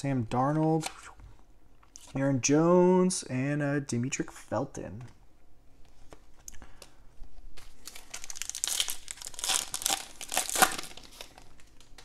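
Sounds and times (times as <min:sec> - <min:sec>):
foil wrapper tearing and crinkling: 0:07.6 - 0:11.9.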